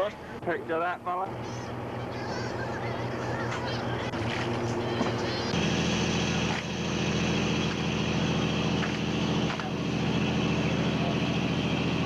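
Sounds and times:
boat engine droning: 0:00.0 - 0:12.0
high whine: 0:00.0 - 0:12.0.

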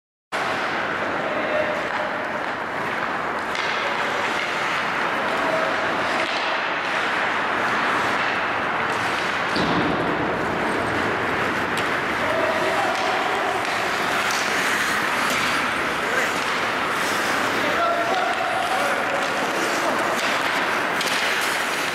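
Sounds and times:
skates hissing on ice: 0:10.4 - 0:21.9
faint distant shouts: 0:12.2 - 0:14.6, 0:17.6 - 0:20.2.

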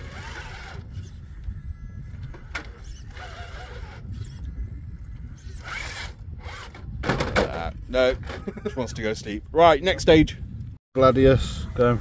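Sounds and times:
toy car electric motor whining: 0:00.0 - 0:06.8.

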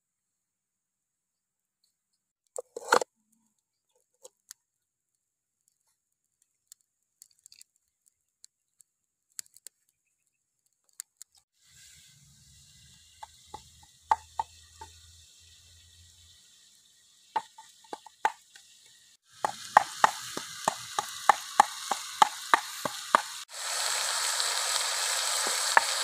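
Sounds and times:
faint steady hiss: 0:11.6 - 0:26.0
wood fire crackling and popping: 0:19.4 - 0:26.0.

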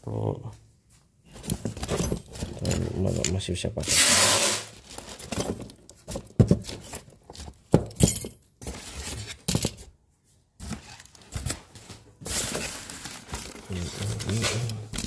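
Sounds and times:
metal parts clinking: 0:07.9 - 0:08.5.

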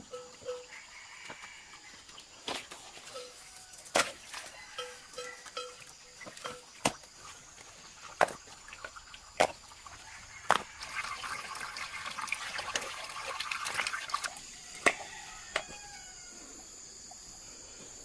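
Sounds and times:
water splashing: 0:05.8 - 0:15.0.

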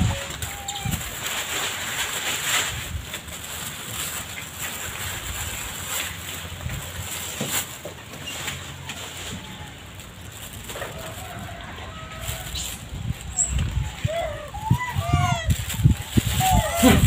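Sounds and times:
wind buffeting microphone: 0:00.0 - 0:01.4, 0:09.4 - 0:17.0.

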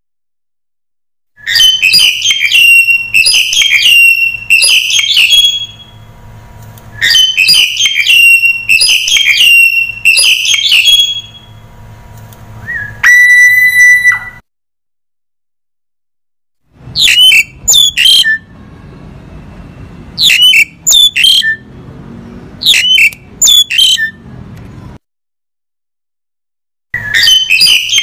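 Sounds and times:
starling whistled song: 0:01.4 - 0:06.0, 0:06.9 - 0:11.6, 0:12.6 - 0:14.4, 0:17.0 - 0:18.5, 0:20.2 - 0:21.7, 0:22.6 - 0:24.2, 0:27.0 - 0:28.0.

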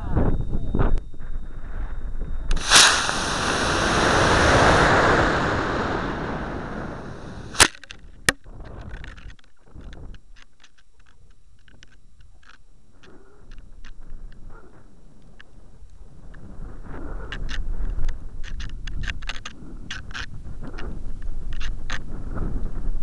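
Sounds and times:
rocket motor roaring hiss: 0:02.5 - 0:07.7
wind rustling: 0:02.5 - 0:07.7
sharp pops: 0:02.5 - 0:08.0.

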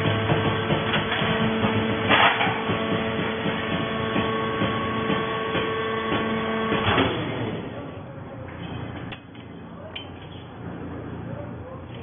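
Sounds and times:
baler mechanical hum: 0:00.0 - 0:12.0
loud metal clanks: 0:00.1 - 0:07.2.

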